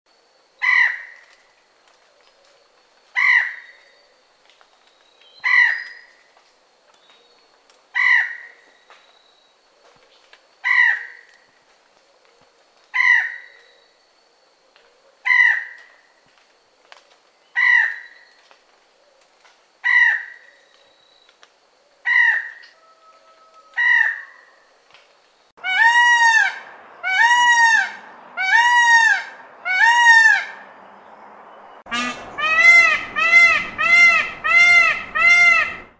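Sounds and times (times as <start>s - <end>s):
peacock calling: 3.1s - 4.2s, 5.4s - 6.2s, 12.9s - 13.8s, 22.0s - 24.7s, 25.6s - 30.7s, 31.8s - 35.9s.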